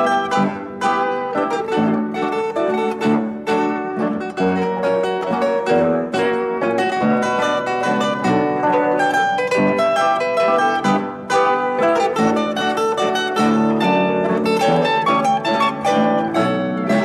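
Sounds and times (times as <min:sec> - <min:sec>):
melody of quickly plucked notes: 0:00.0 - 0:17.0.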